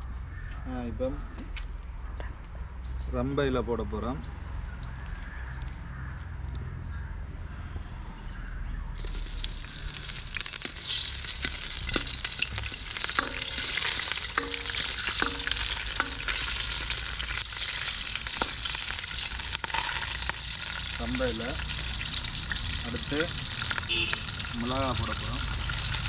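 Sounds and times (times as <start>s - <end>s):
leaves sizzling in hot oil: 9.0s - 26.0s
spatula scraping a wok: 10.3s - 21.0s.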